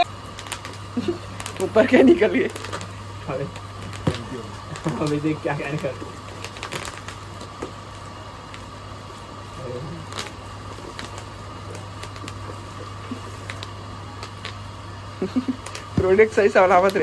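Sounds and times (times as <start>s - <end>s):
low room hum: 0.0s - 17.0s
packaging clicks and rustles: 0.2s - 14.7s.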